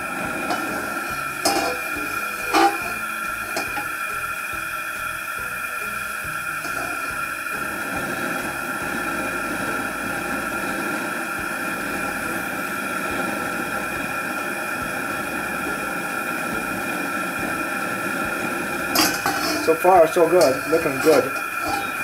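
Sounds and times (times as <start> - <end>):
propane burner hissing: 0.0 - 22.0
faint high tone: 21.7 - 22.0.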